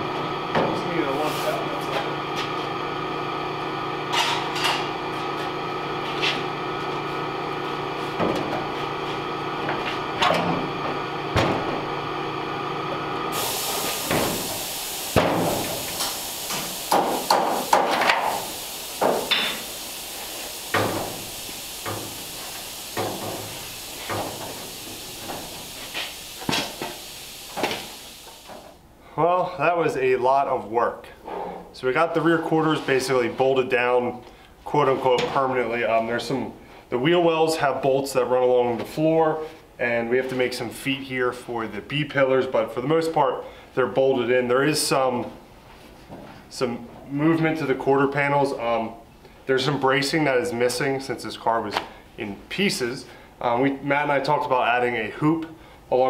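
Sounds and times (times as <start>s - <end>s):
steady hum: 0.0s - 31.1s
steady hiss: 13.3s - 28.8s.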